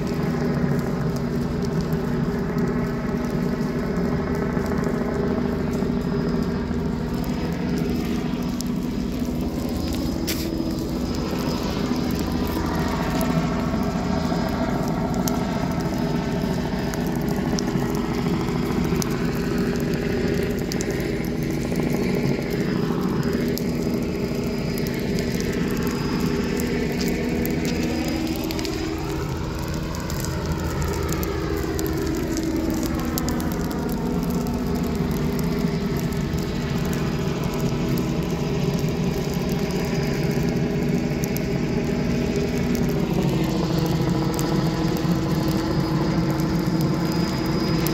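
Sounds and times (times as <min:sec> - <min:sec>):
helicopter drone overhead: 0:00.0 - 0:47.9.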